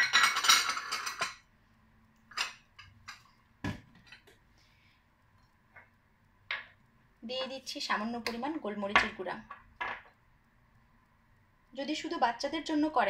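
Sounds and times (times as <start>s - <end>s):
dishes clinking on stone countertop: 0.0s - 1.5s, 2.3s - 4.3s.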